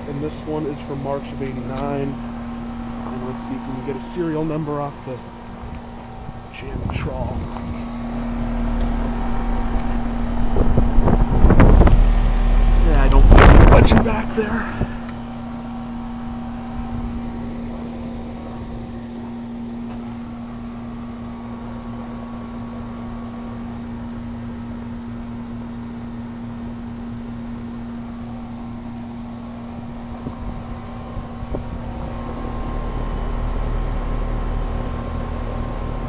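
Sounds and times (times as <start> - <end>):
low rumble: 0.0 - 22.1, 29.8 - 36.0
heat pump humming: 0.0 - 36.0.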